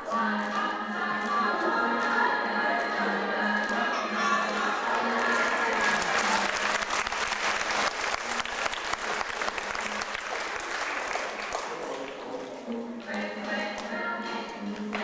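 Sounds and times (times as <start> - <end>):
audience applauding: 3.7 - 12.6.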